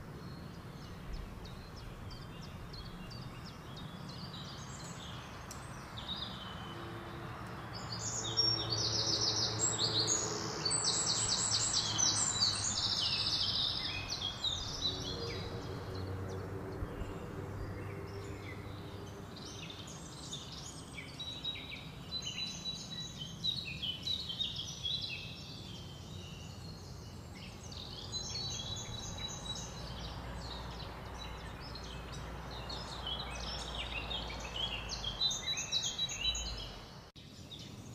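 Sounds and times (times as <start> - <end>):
songbirds singing: 0.0 - 37.9
low outdoor rumble: 12.2 - 20.8.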